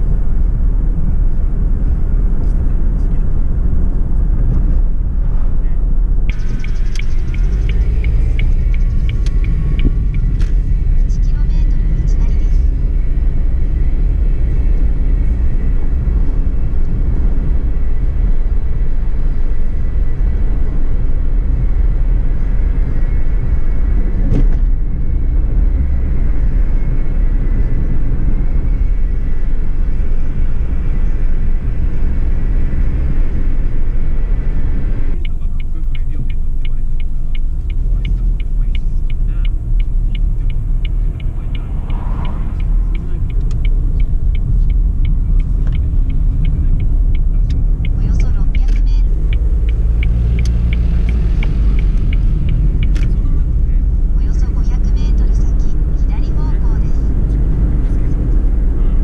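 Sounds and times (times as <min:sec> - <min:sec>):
car road and engine rumble: 0:00.0 - 0:59.0
regular light ticking: 0:35.1 - 0:56.6.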